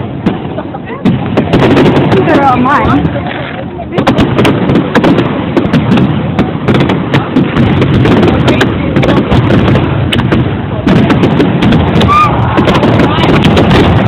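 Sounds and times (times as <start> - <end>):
fireworks bangs and crackling: 0.0 - 14.0.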